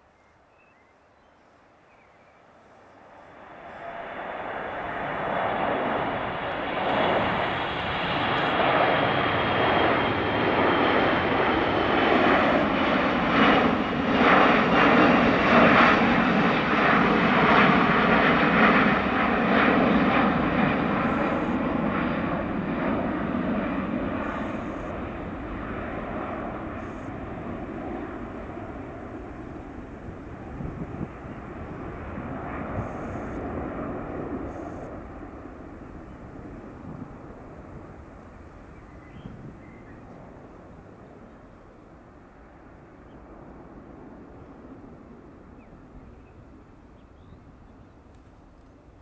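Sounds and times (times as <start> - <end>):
jet airliner passing overhead: 2.4 - 49.0
high engine whine: 3.4 - 12.8, 18.9 - 40.0.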